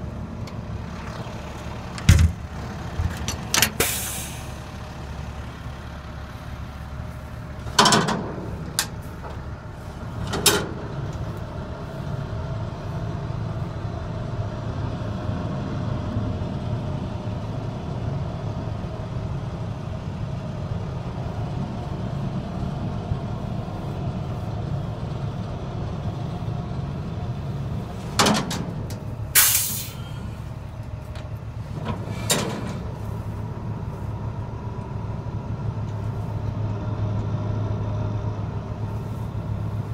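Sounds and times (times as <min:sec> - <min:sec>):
diesel truck engine idling: 0:00.0 - 0:39.9
short hiss: 0:03.7 - 0:04.6, 0:29.4 - 0:30.3.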